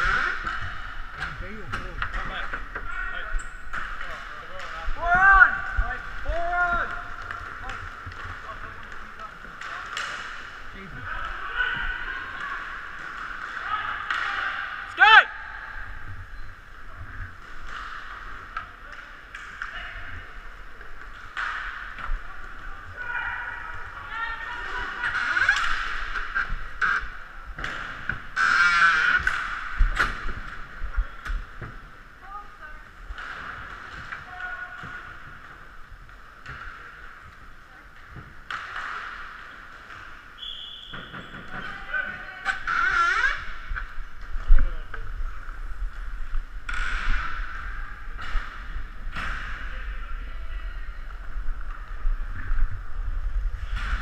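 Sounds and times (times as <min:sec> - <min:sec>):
skating hiss in echoing hall: 0:00.0 - 0:01.7, 0:03.9 - 0:54.0
hockey sticks and puck clicking: 0:03.4 - 0:11.5, 0:17.4 - 0:22.7, 0:24.7 - 0:32.0, 0:33.0 - 0:40.3, 0:42.4 - 0:49.7
stick and puck clacks: 0:06.0 - 0:10.6.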